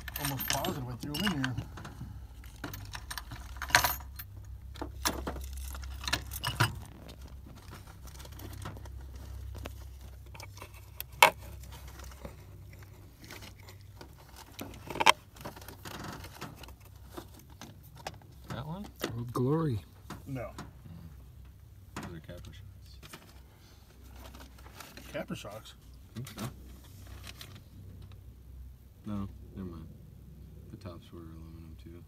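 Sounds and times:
small metal parts clinking: 0.0 - 17.0
low steady hum: 0.0 - 32.0.

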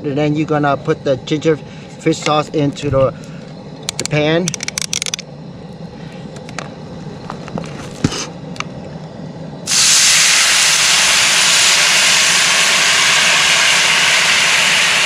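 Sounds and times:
sauce sizzling in hot pan: 9.7 - 15.0.

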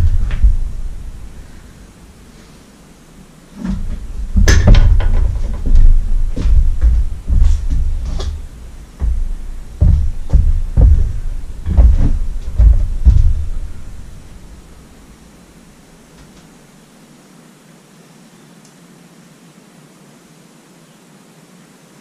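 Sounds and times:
tools and engine parts thumping: 0.0 - 2.2, 3.6 - 15.0.

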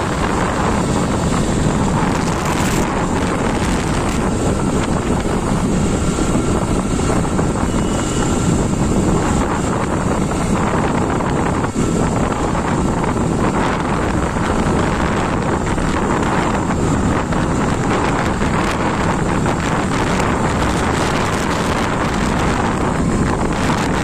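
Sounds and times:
motorbike running: 0.0 - 24.0
road noise: 0.0 - 24.0
wind buffeting microphone: 0.0 - 24.0.

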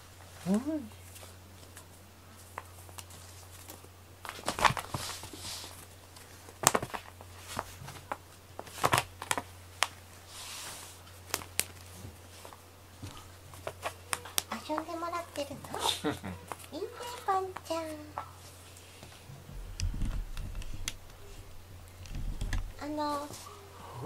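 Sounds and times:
faint low hum: 0.0 - 24.0
brief rustling: 16.5 - 23.6.

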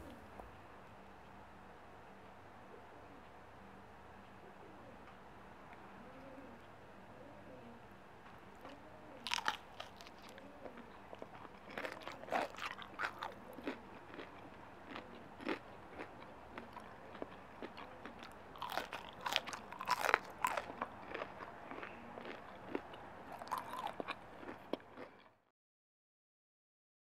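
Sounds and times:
person chewing crunchy food: 8.6 - 25.4.

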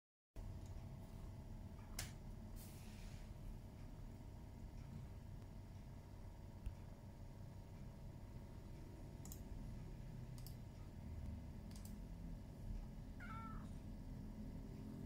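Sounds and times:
cat meowing faintly: 13.2 - 13.8.

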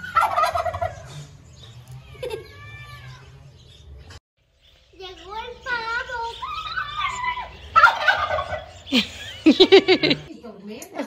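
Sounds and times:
turkey gobbling: 0.0 - 1.1, 6.4 - 9.0.

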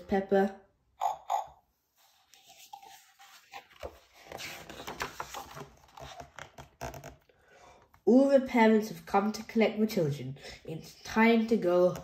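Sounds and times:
paper pages being turned: 2.0 - 7.3.

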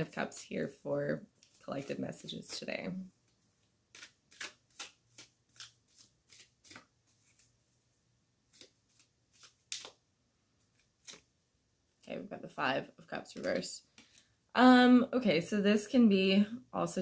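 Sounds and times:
cards being shuffled: 1.4 - 7.6, 8.4 - 10.0, 10.6 - 11.3.

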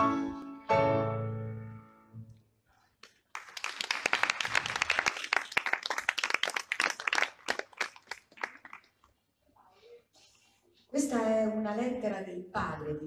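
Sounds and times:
audience applauding: 3.0 - 9.1.

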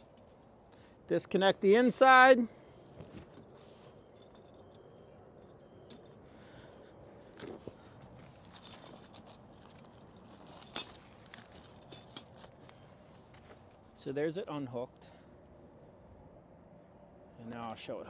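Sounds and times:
snow chain links clinking: 0.0 - 0.3, 2.7 - 6.2, 8.4 - 12.5.

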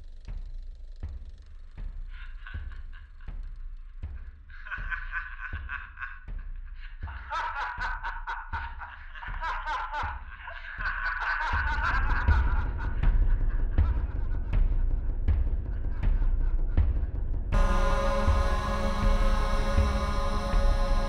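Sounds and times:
man laughing: 2.1 - 3.4, 4.5 - 14.2
deep low sound: 11.5 - 21.0
low repeating thump: 11.6 - 21.0.

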